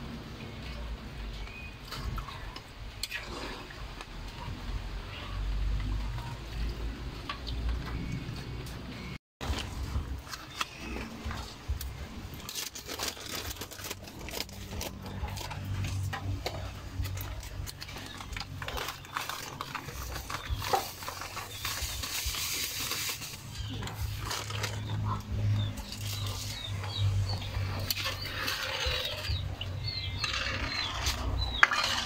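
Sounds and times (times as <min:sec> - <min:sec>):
plastic bag crinkling: 0:12.2 - 0:16.1, 0:17.0 - 0:25.1.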